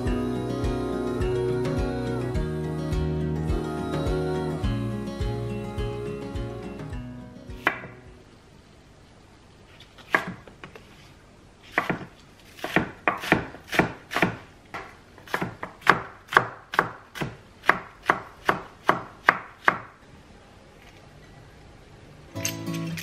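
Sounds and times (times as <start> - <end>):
knife chopping on wooden board: 7.6 - 7.9, 10.1 - 10.5, 11.7 - 19.9.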